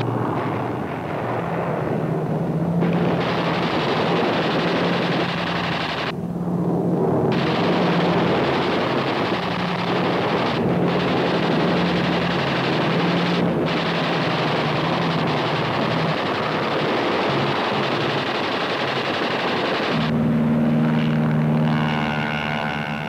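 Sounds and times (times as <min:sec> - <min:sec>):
aircraft engine drone: 0:00.0 - 0:23.0
machine-gun fire: 0:02.8 - 0:06.1, 0:07.3 - 0:20.1.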